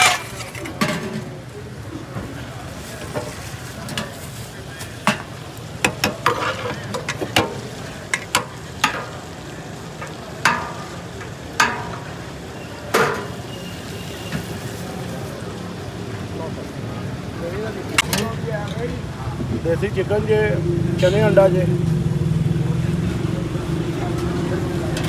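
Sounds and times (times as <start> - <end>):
metal ladle clinking on pot: 5.0 - 9.2, 10.0 - 12.2, 12.9 - 13.4.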